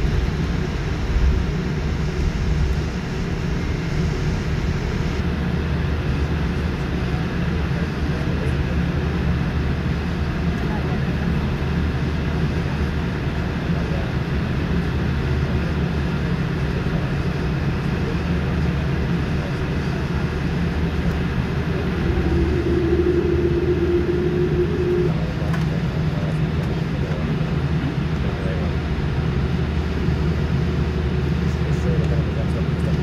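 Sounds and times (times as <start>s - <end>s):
aircraft cabin hum: 18.7s - 27.2s
steady mid-pitched tone: 19.7s - 25.5s.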